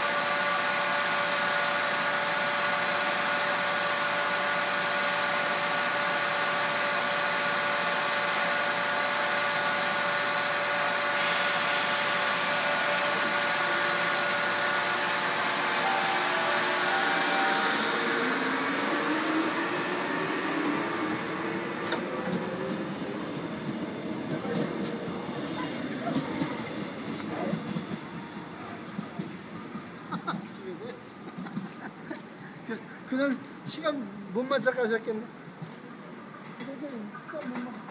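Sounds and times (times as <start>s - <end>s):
train machinery whirring: 0.0s - 33.6s
traction motors whining: 9.2s - 30.1s.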